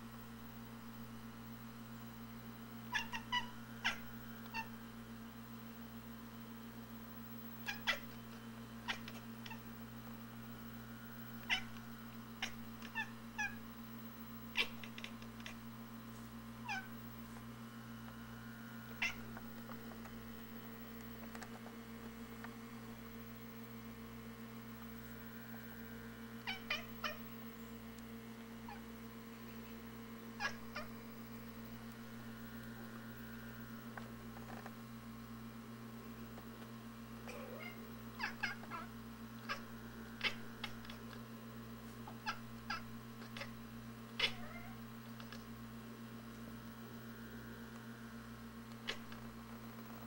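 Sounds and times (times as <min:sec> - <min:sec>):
steady low hum: 0:00.0 - 0:50.0
cat chattering: 0:02.9 - 0:04.7, 0:07.6 - 0:09.8, 0:11.4 - 0:13.6, 0:14.5 - 0:15.7, 0:16.6 - 0:17.0, 0:19.0 - 0:19.5, 0:26.4 - 0:27.2, 0:28.7 - 0:31.0, 0:37.2 - 0:41.2, 0:42.1 - 0:43.6, 0:44.2 - 0:45.6, 0:48.8 - 0:49.2.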